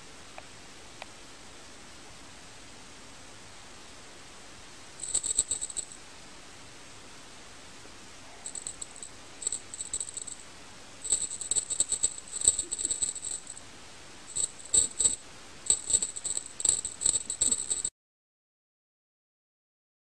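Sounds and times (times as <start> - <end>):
small bells jingling: 5.0 - 6.0, 8.4 - 10.4, 11.0 - 13.6, 14.3 - 17.9.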